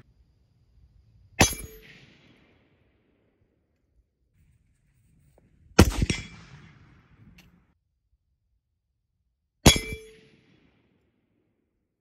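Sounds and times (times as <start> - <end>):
bullet hitting ringing steel target: 1.4 - 2.1, 5.8 - 6.8, 9.6 - 10.4
gunshot: 1.4 - 2.8, 5.8 - 7.4, 9.6 - 10.9.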